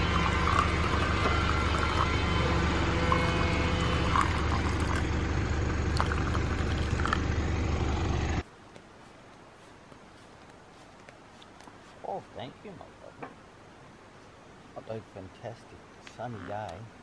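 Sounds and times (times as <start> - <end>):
hot water pouring into mug: 0.0 - 2.2, 3.1 - 5.1, 5.9 - 7.2
low engine-like hum: 0.0 - 8.4
faint open-air background: 0.0 - 17.0.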